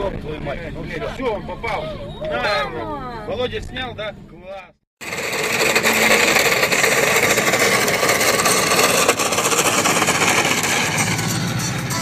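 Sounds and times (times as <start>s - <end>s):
moving car rushing noise: 5.0s - 12.0s.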